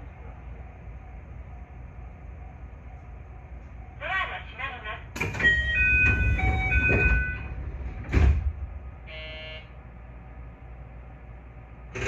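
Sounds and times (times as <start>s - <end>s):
train doors closing thud: 5.1s - 8.8s.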